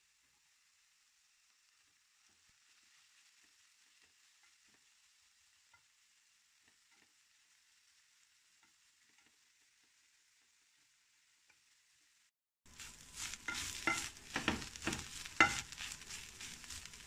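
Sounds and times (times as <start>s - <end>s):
fish sizzling in a pan: 0.0s - 17.0s
wooden spatula scraping a pan: 12.7s - 17.0s.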